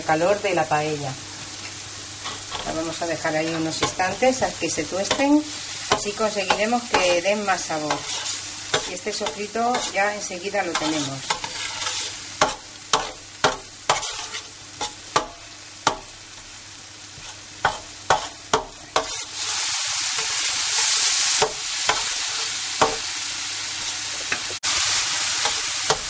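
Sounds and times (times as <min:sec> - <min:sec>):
food sizzling in oil: 0:00.0 - 0:26.0
metal spatula scraping pan: 0:05.9 - 0:15.3, 0:17.2 - 0:19.6.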